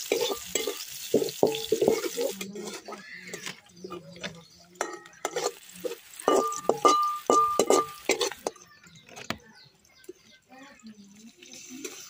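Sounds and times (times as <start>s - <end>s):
metal ladle clinking in pot: 0.1s - 3.5s, 4.8s - 5.6s, 6.2s - 8.6s.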